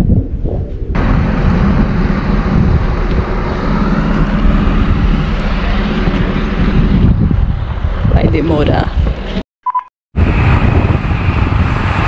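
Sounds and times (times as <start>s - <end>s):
road and wind noise: 0.0s - 9.4s, 10.2s - 12.0s
heavy truck engine rumble: 0.8s - 8.3s.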